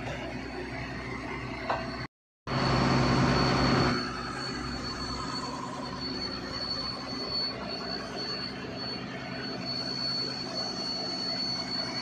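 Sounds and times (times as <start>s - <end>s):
thin high whine: 1.0s - 12.0s
diesel engine running: 2.5s - 12.0s.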